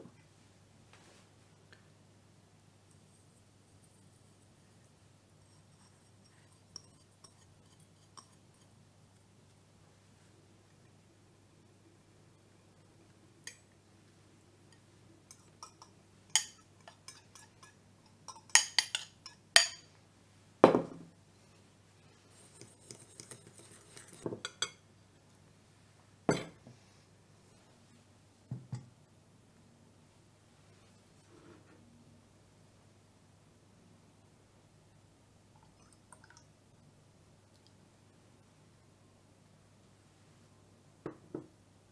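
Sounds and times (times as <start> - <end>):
fork clinking against glass bowl: 15.3 - 19.9.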